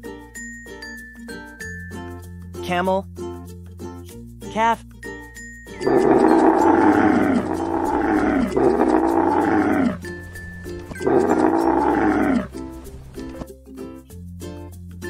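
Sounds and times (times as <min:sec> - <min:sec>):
camel bellowing: 0:05.8 - 0:12.8.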